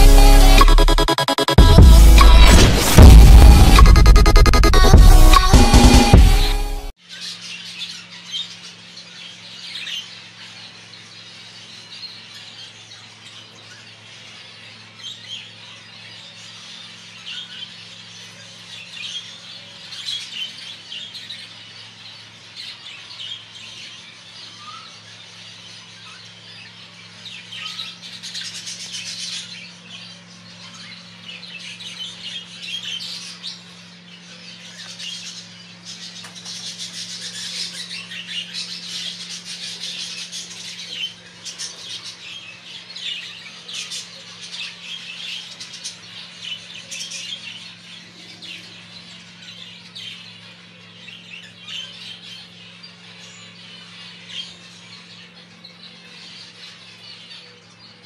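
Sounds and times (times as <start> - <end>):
steady low hum: 0.0 - 7.0.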